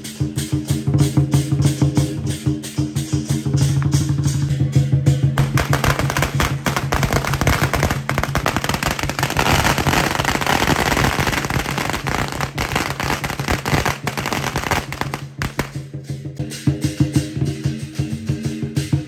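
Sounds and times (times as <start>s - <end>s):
background music: 2.3s - 19.0s
firecrackers crackling: 5.2s - 16.0s.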